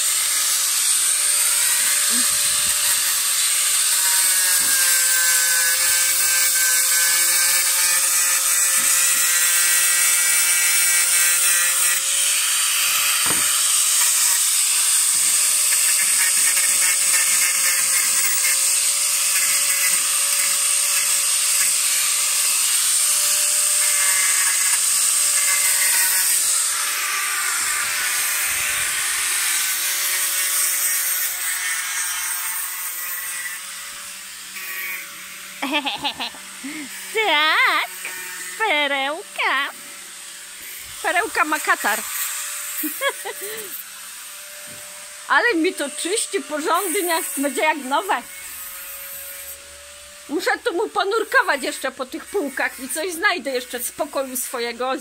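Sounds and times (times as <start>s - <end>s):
angle grinder grinding metal: 0.0s - 55.0s.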